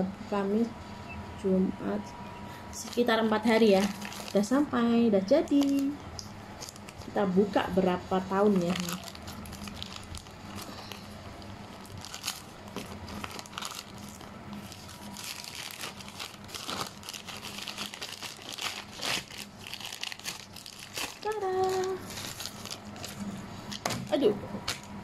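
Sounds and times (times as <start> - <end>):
plastic bag tearing and crinkling: 2.8 - 4.5, 5.5 - 6.0, 6.6 - 7.2, 8.5 - 25.0.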